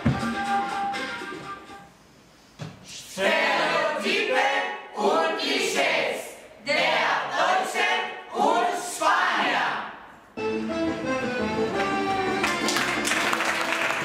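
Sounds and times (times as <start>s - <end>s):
music: 0.0s - 2.4s, 10.4s - 14.0s.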